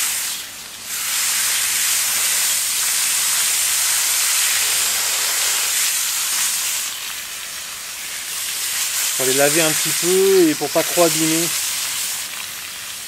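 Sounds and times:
hose spray spattering on roots: 8.8 - 12.5.

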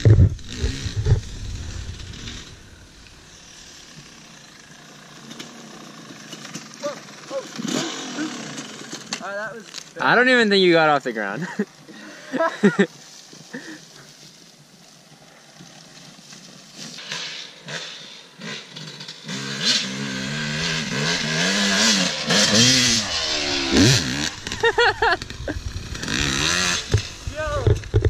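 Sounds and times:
dirt bike engine revving: 0.0 - 9.2, 17.0 - 28.0.

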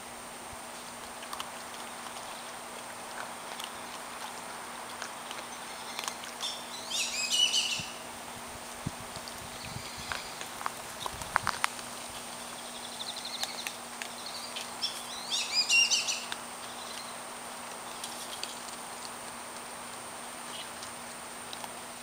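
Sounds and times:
high-pitched chirping call: 5.7 - 8.0, 14.2 - 17.1.

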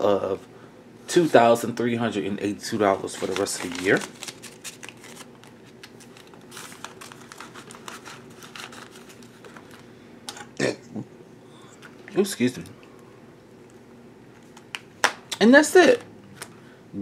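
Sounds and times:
banknotes rustling: 2.7 - 9.9
plastic sleeve crinkling: 2.9 - 9.9.

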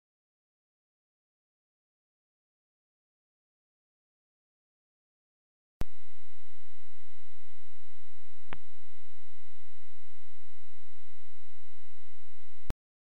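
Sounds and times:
steady electronic tone: 5.8 - 12.7
low hum and hiss: 5.8 - 12.8
click: 8.4 - 8.8.

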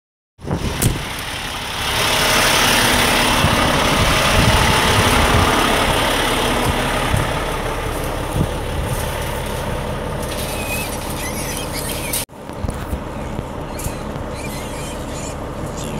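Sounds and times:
truck engine idling: 0.4 - 15.9.

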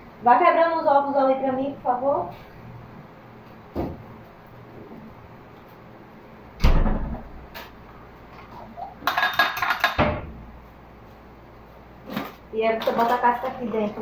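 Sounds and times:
refrigerator door thump: 6.6 - 7.3.

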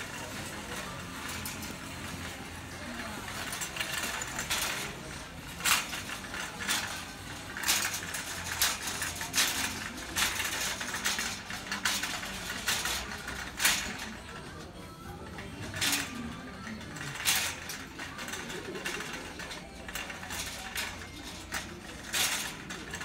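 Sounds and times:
shopping cart rattling: 0.0 - 23.0
steady background hum: 0.0 - 23.0.

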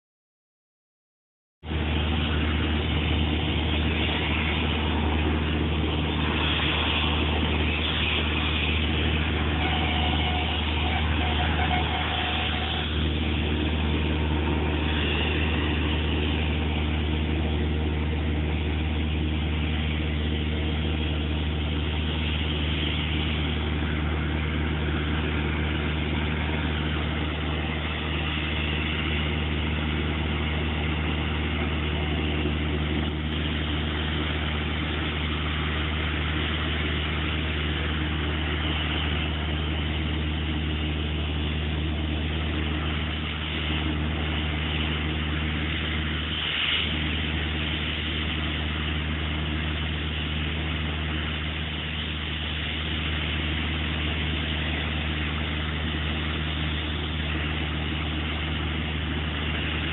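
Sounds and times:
air compressor engine humming: 1.6 - 59.9
compressed air hissing from hose: 3.4 - 17.6, 42.0 - 59.9.

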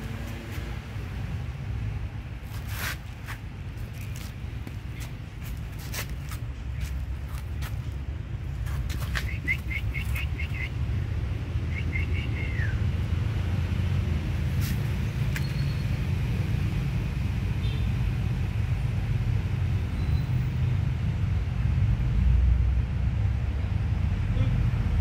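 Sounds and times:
low outdoor rumble: 0.0 - 25.0
small bird chirps: 9.1 - 10.8, 15.4 - 15.9.

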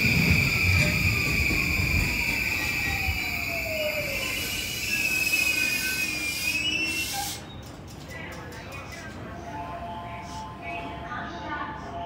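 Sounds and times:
train braking whine: 0.0 - 7.5
train wheel squeal: 0.0 - 7.8.

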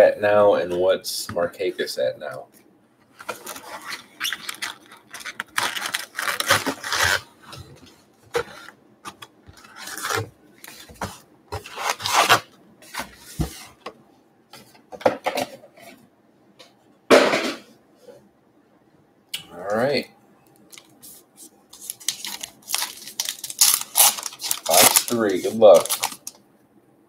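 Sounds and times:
cardboard and wrapper scraping: 3.2 - 7.7, 8.3 - 13.8, 21.8 - 26.3.

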